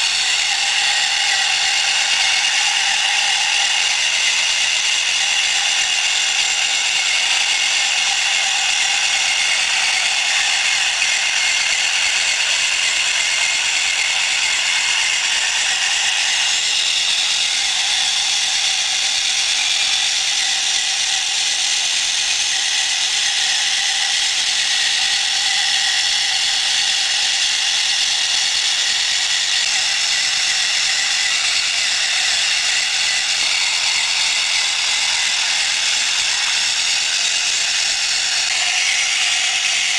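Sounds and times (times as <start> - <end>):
model crawler track whirring: 0.0 - 39.9.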